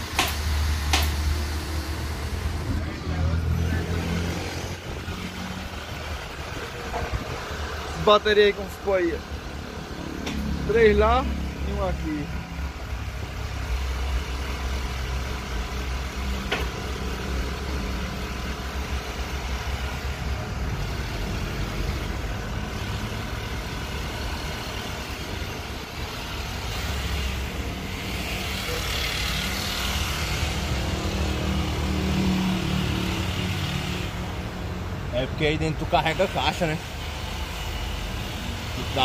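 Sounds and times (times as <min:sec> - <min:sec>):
vehicle engine rumble: 0:00.0 - 0:39.0
sharp click: 0:00.1 - 0:01.2.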